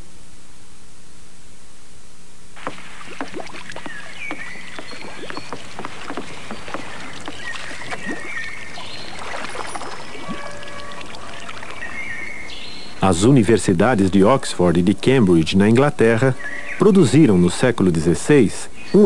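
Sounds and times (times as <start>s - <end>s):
water splashing and lapping: 2.6s - 13.0s
bird chirps: 3.7s - 17.7s.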